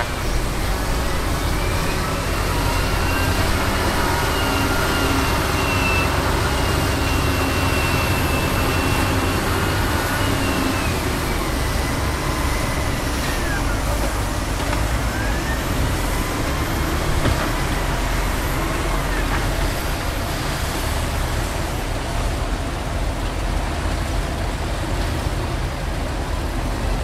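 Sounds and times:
diesel truck engine rumbling: 0.0s - 27.0s.

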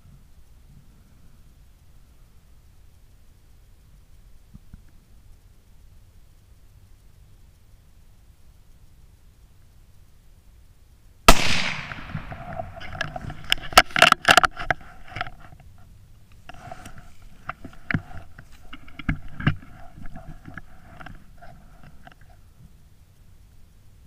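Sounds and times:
rifle shot: 11.3s - 12.8s
rifle handling clicks and clatter: 11.3s - 15.7s.

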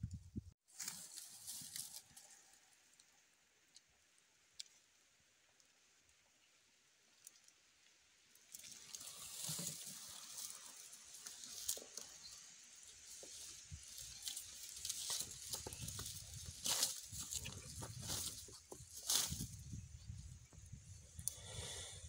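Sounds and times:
scraping over dry leaves: 0.7s - 2.8s, 8.5s - 19.8s.

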